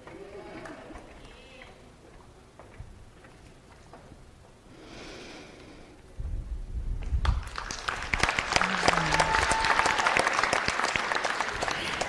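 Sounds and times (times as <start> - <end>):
audience applause: 7.2 - 12.0.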